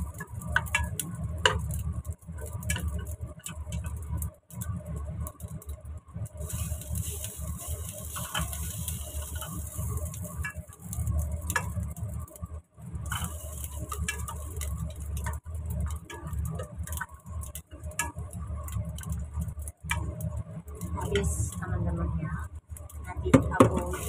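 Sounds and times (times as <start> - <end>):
steady low hum: 0.0 - 24.0
hiss: 6.4 - 11.7, 13.1 - 14.7
spoon scraping and knocking pot: 8.2 - 9.5.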